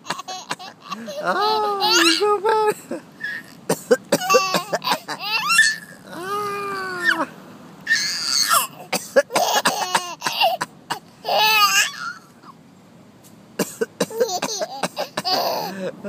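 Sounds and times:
baby coughing: 0.0s - 2.2s, 3.2s - 5.8s, 8.4s - 12.0s, 13.6s - 15.7s
baby giggling: 0.0s - 7.3s, 14.0s - 15.8s.

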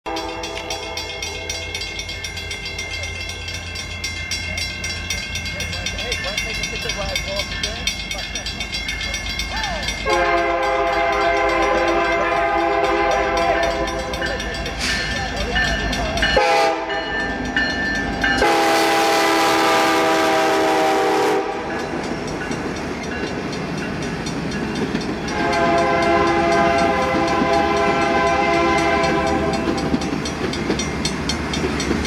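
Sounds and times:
locomotive air horn blasts: 0.1s - 1.1s, 10.1s - 14.2s, 16.4s - 17.0s, 18.4s - 21.7s, 25.3s - 29.8s
train wheels clattering on rails: 0.1s - 32.0s.

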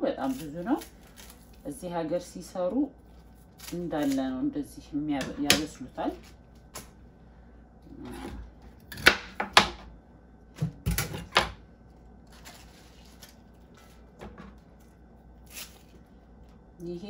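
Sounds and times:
rustling of leafy stalks: 12.3s - 14.0s.

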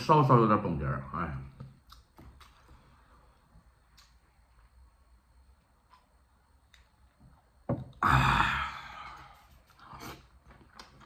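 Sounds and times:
man exhaling loudly: 8.0s - 9.5s.

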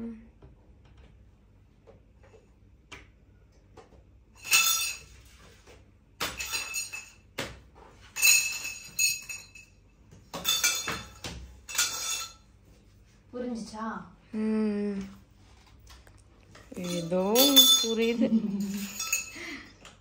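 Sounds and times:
metal parts clinking and rattling: 4.4s - 5.2s, 6.4s - 7.2s, 8.0s - 9.8s, 10.4s - 12.4s, 16.6s - 19.5s.

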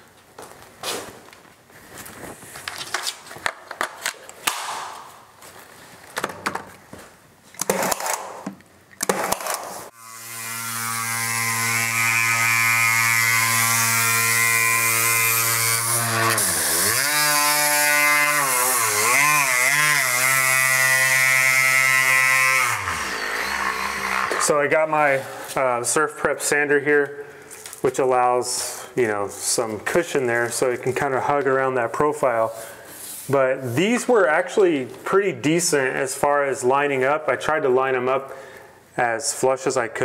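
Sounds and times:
electric sander running: 9.9s - 24.5s.

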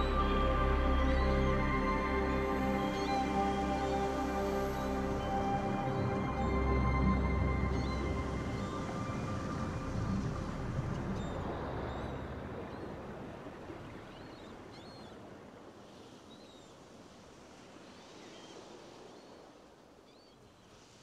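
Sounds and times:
steady wash of noise: 0.0s - 13.0s.

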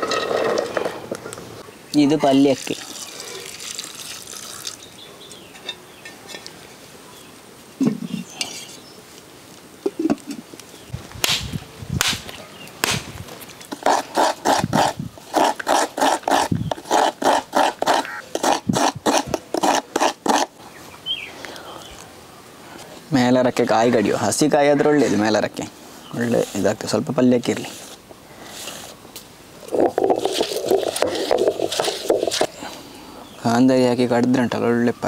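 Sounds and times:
water pouring into a pot: 2.6s - 4.8s
coconut being struck: 11.2s - 13.2s
coconut grating by hand: 13.7s - 20.6s, 29.7s - 32.6s.

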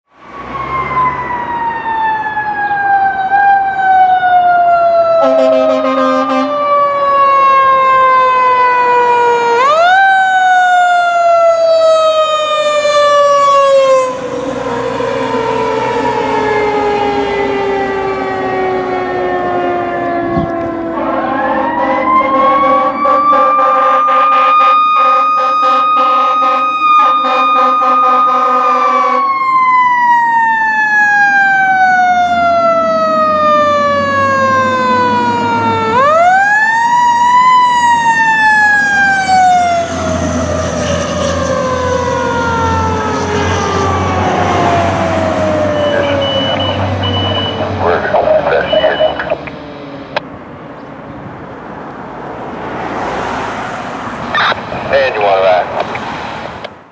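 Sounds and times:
second fire siren wailing: 0.2s - 50.6s, 51.6s - 55.8s
fire siren winding: 0.4s - 47.8s
short horn blast: 5.2s - 6.6s.

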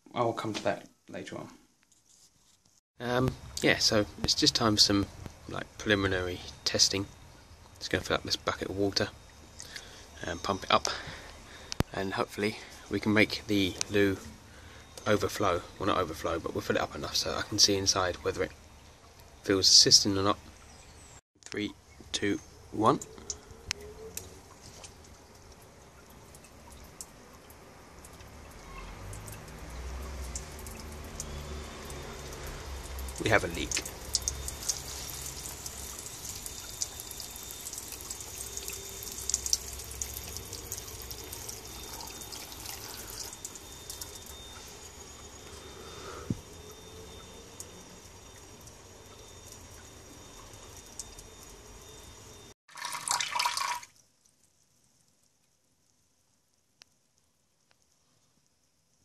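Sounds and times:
water dripping and trickling: 3.0s - 59.0s
faint ticks: 9.6s - 10.0s, 54.0s - 59.0s.

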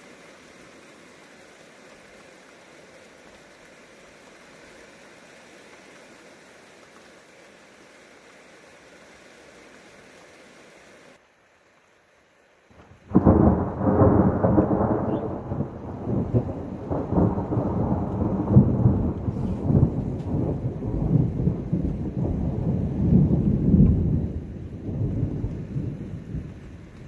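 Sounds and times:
thunder crack and rumble: 12.8s - 27.0s.

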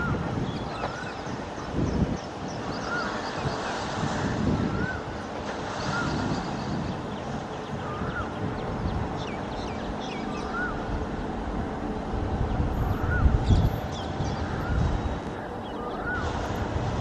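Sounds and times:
low wind rumble: 0.0s - 17.0s
bird whistled call: 9.6s - 10.9s, 15.6s - 16.4s.

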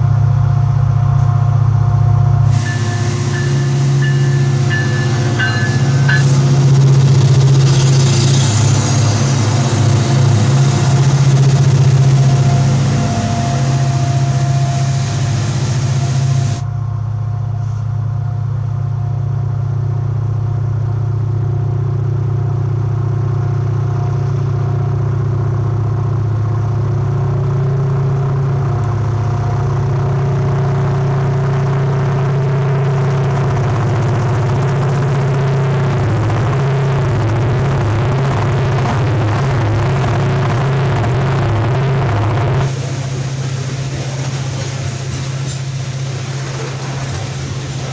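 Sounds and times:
locomotive engines droning: 0.0s - 47.9s
wheels hissing on rail: 0.9s - 16.7s, 26.7s - 47.9s.

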